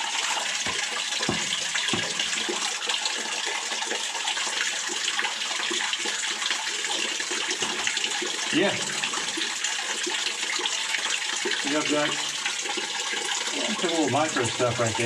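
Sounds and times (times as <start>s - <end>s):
water running and splashing: 0.0s - 15.0s
sharp knocks: 0.6s - 2.6s.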